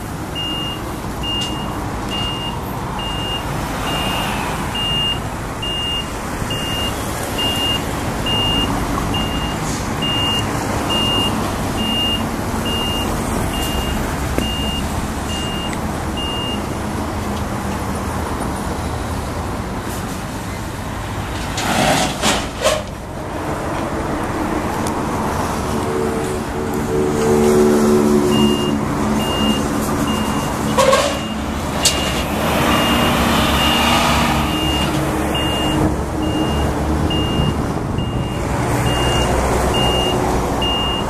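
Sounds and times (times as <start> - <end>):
reversing alarm beeping: 0.4 - 16.7, 28.3 - 41.0.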